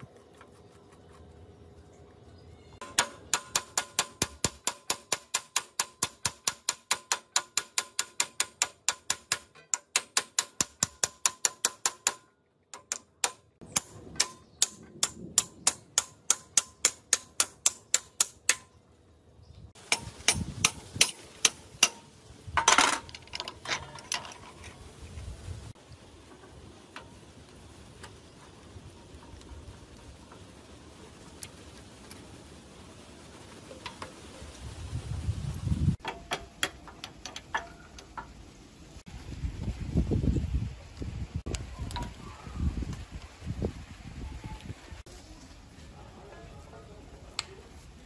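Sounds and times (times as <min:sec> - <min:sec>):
hammer tapping steel drift: 0:02.8 - 0:18.8, 0:19.8 - 0:22.2, 0:36.0 - 0:38.4.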